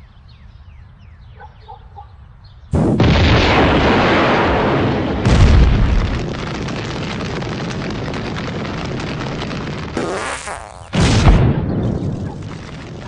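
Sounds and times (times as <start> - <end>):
explosion blasts: 2.7 - 13.0.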